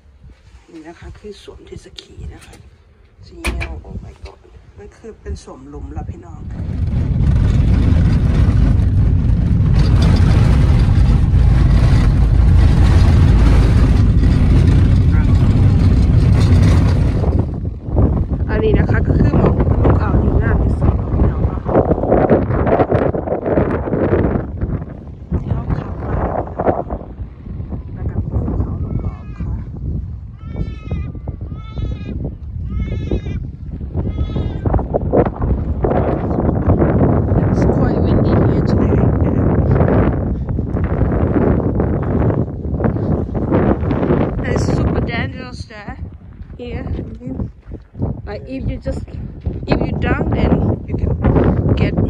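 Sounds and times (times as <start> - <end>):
wind rumble on microphone: 0.0 - 52.0
tyre noise on gravel road: 6.6 - 18.5
car engine: 7.5 - 17.8.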